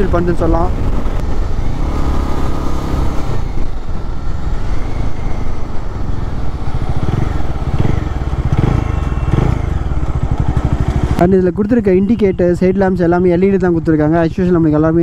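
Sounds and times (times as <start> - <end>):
road and wind noise: 0.0 - 15.0
motorcycle engine running: 5.6 - 12.0.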